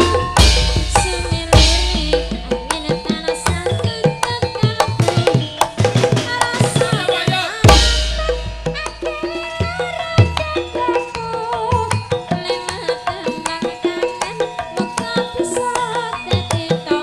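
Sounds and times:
hand drum strokes: 0.0 - 10.4
gamelan ensemble playing: 0.0 - 15.6
woman singing: 0.0 - 17.0.

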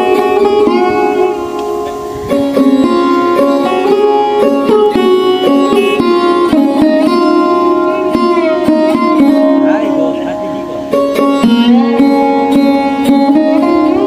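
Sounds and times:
plucked string melody: 0.0 - 14.0.

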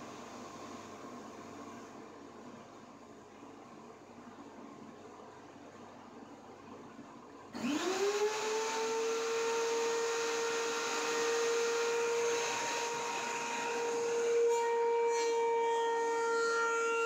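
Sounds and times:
thickness planer whining: 7.6 - 17.0.

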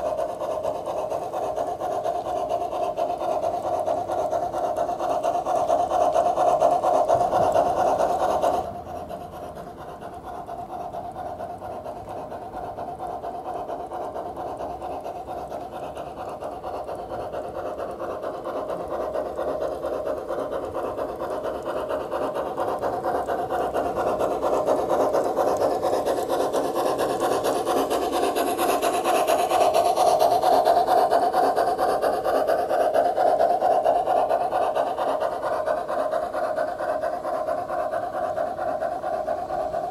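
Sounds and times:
model locomotive chuffing: 0.0 - 39.9.

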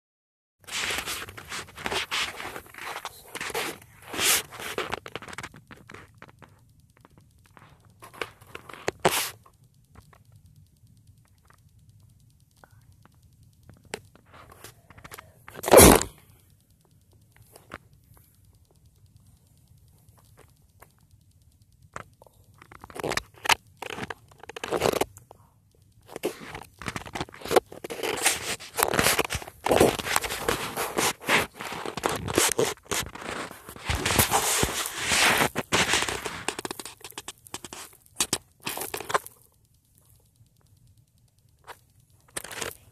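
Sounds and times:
phone handling rustles and clicks: 0.6 - 10.2, 13.7 - 16.4, 21.9 - 25.3, 26.0 - 39.4.

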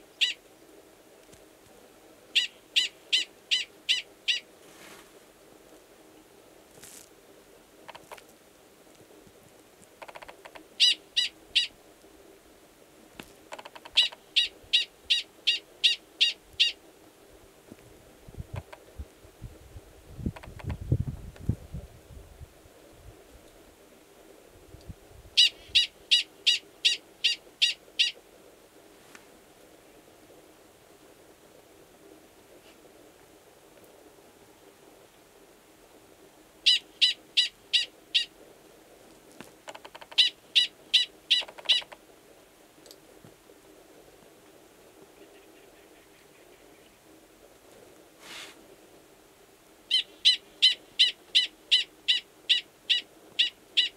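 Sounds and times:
prairie dog high chirps: 0.2 - 0.4, 10.1 - 11.7, 36.6 - 38.3, 39.8 - 42.0, 49.9 - 53.9.

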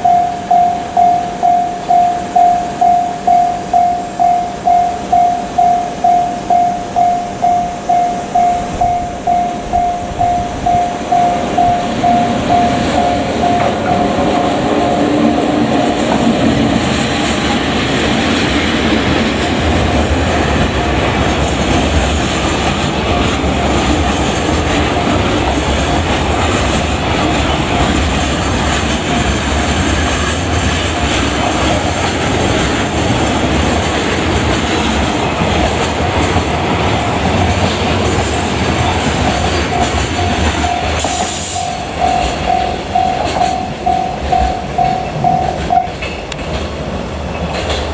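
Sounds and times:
level-crossing warning bell ringing: 0.0 - 18.0, 22.6 - 46.3
train wheels rumbling on rails: 0.0 - 47.9.

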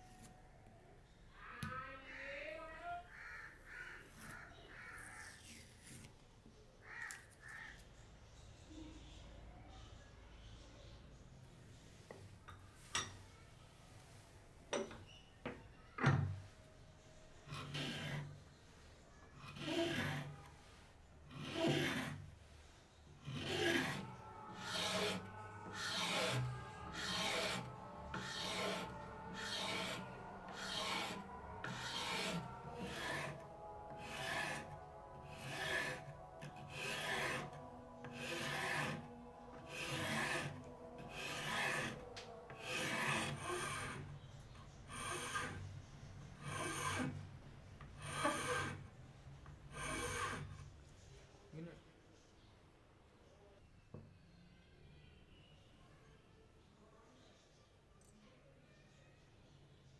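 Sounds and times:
hand file rasping on wood: 17.5 - 18.4, 19.4 - 20.5, 21.3 - 22.3, 23.2 - 44.1, 44.9 - 45.6, 46.4 - 47.2, 48.0 - 48.9, 49.7 - 50.6.

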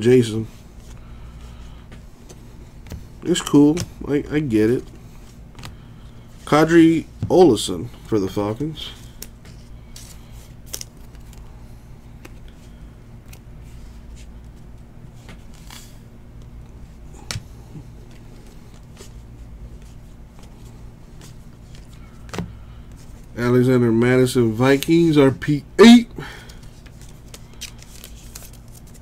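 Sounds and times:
low electrical hum: 0.0 - 29.0
trading cards flipped: 9.1 - 11.5, 15.2 - 23.2, 26.4 - 29.0.

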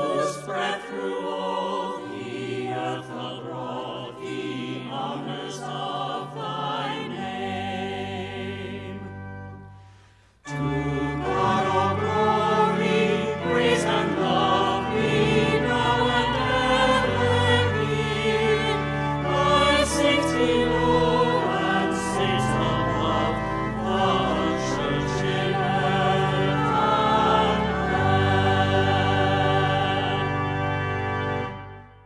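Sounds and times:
choir singing a hymn: 0.0 - 31.8
held low accompanying notes: 10.4 - 31.8.

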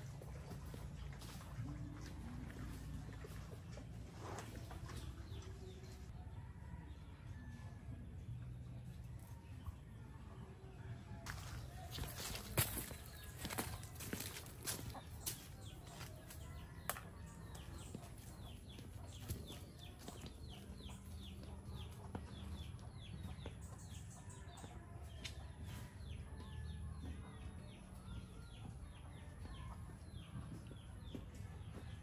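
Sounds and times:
chickens chirping: 11.3 - 32.0.

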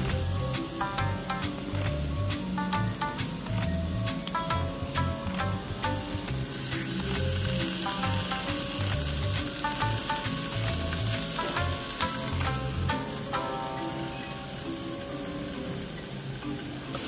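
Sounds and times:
beef sizzling in a pan: 6.0 - 17.0.

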